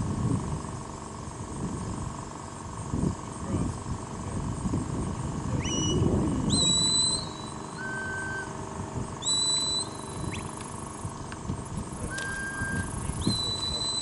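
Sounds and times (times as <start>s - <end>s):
low rumbling background noise: 0.0s - 14.0s
herding whistle notes: 5.6s - 8.5s, 9.2s - 10.5s, 12.1s - 14.0s.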